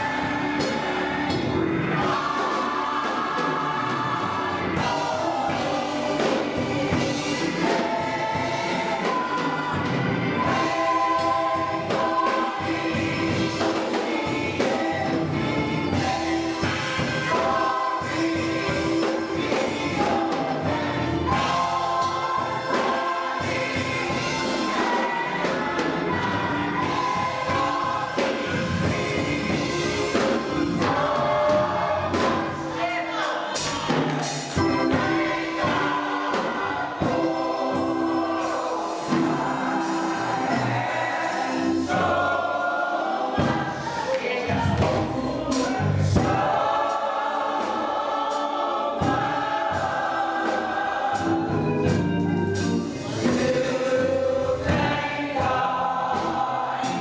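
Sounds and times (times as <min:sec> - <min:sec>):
gospel choir singing: 0:00.0 - 0:57.0
church organ: 0:34.6 - 0:42.2, 0:49.7 - 0:54.6.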